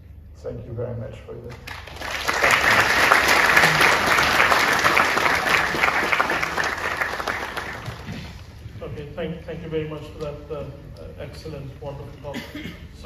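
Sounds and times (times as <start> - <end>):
audience applauding: 1.6 - 8.6.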